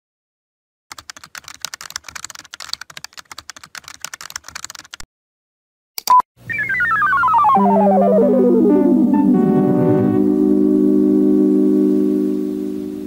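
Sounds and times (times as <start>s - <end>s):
fast keyboard typing: 0.9s - 5.0s.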